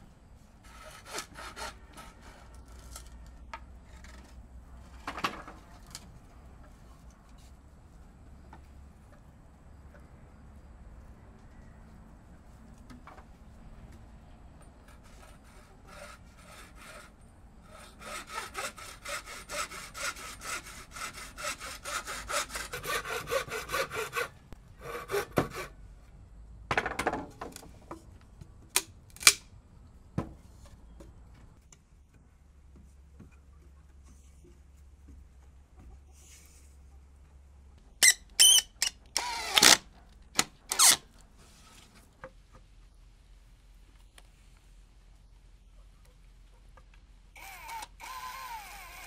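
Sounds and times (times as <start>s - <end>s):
hand saw cutting wood: 0.6s - 2.6s, 14.9s - 25.8s.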